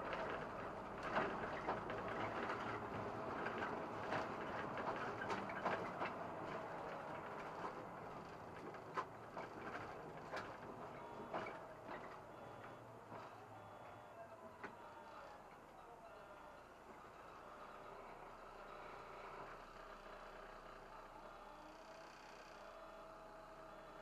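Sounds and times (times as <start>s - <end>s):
rattles and clicks of bus body: 0.0s - 14.8s
bus running noise: 0.0s - 21.7s.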